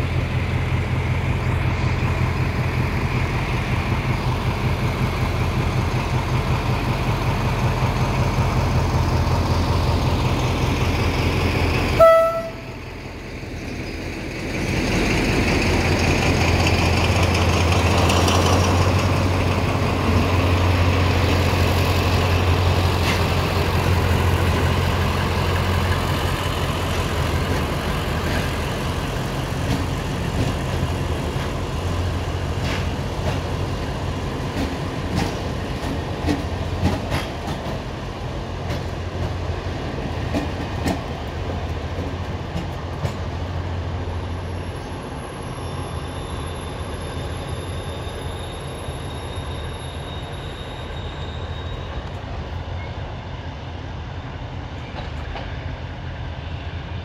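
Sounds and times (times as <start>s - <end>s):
diesel locomotive engine humming: 0.0s - 57.0s
train wheels clicking over rail joints: 13.6s - 43.6s.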